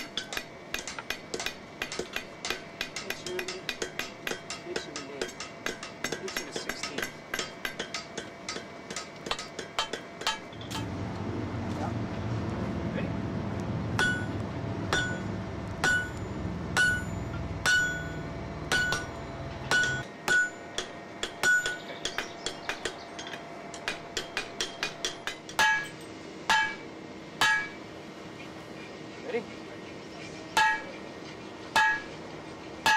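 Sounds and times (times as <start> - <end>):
hammer striking steel on anvil: 0.0 - 10.9, 14.0 - 27.8, 30.6 - 31.0, 31.7 - 32.2.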